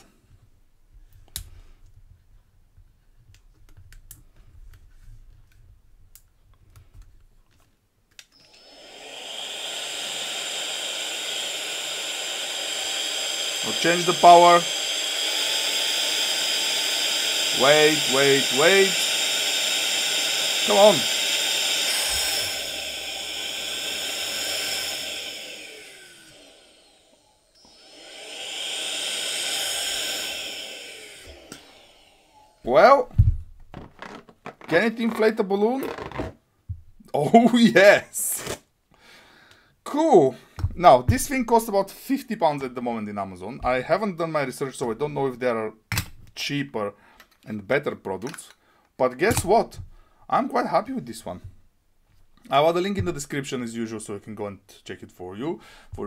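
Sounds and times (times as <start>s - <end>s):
air duster motor whine: 8.3s - 33.0s
rubbery balloon handling: 33.0s - 37.0s.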